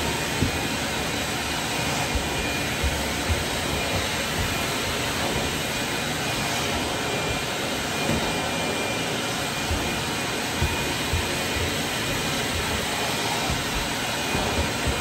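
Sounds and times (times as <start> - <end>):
shop vacuum running: 0.0 - 15.0
low thumps: 1.9 - 5.8, 9.6 - 15.0.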